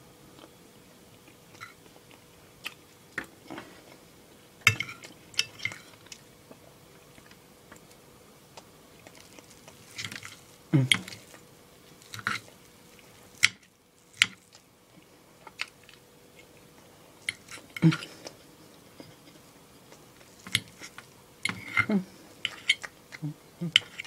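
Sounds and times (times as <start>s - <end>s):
person chewing food: 0.3s - 24.0s.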